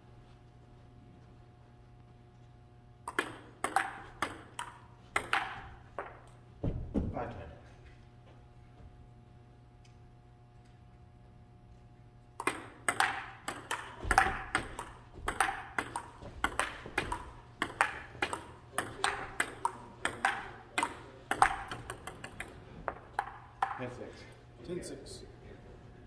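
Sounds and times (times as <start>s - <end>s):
table tennis ball clicking: 3.1s - 6.2s, 12.4s - 23.8s.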